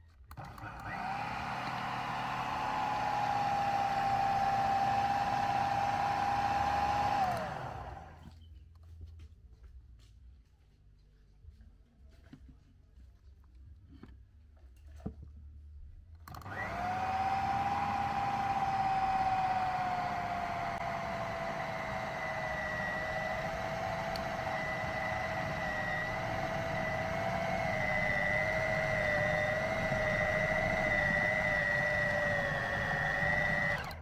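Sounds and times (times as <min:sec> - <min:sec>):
food processor motor whine: 0:00.3 - 0:08.3, 0:16.3 - 0:34.0.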